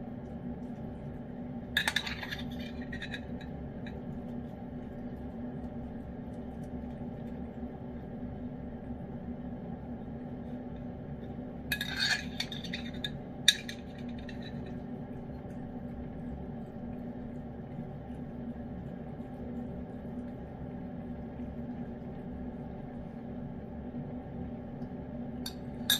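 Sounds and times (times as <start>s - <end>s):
low hum: 0.0s - 25.9s
metal spoon scraping ceramic dish: 1.8s - 3.4s, 11.7s - 14.6s.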